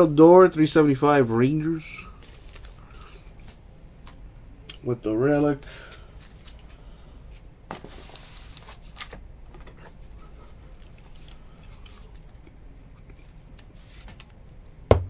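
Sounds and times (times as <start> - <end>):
card sliding rustle: 7.3 - 9.2, 13.6 - 14.4.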